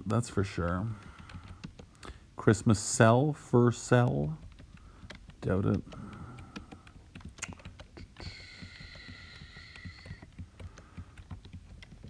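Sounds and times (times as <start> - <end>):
keyboard key taps: 0.3 - 2.2, 4.0 - 12.0.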